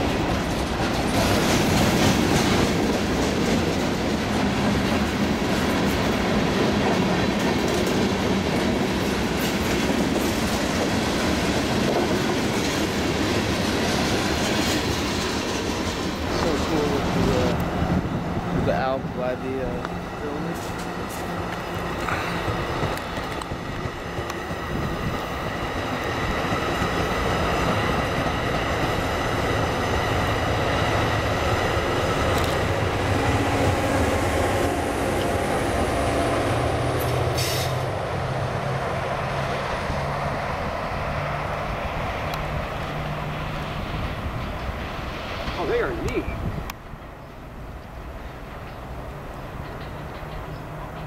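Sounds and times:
train wheels rumbling on rails: 0.0s - 51.0s
locomotive engine drone: 13.8s - 51.0s.

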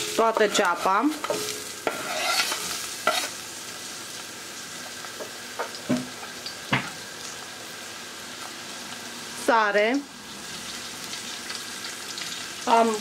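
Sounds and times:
onions sizzling in oil: 0.0s - 13.0s.

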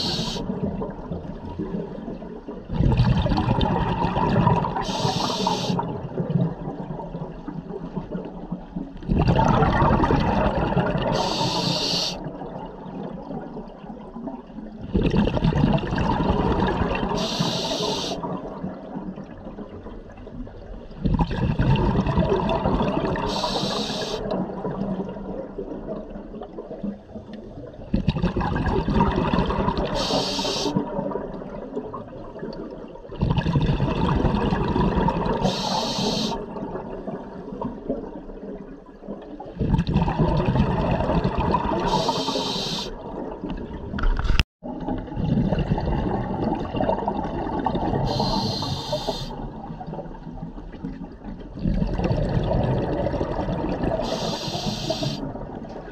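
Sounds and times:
regulator breath hiss: 0.0s - 0.4s, 4.9s - 5.8s, 11.2s - 12.2s, 17.2s - 18.2s, 23.3s - 24.2s, 30.0s - 30.8s, 35.4s - 36.4s, 41.9s - 43.0s, 48.1s - 49.4s, 54.0s - 55.2s
exhaled bubbles underwater: 0.0s - 55.9s.

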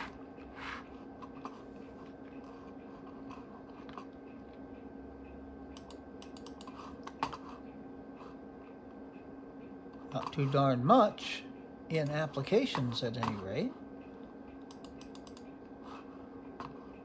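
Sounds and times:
steady low hum: 0.0s - 17.0s
computer mouse clicks: 5.2s - 7.4s, 14.0s - 15.6s.

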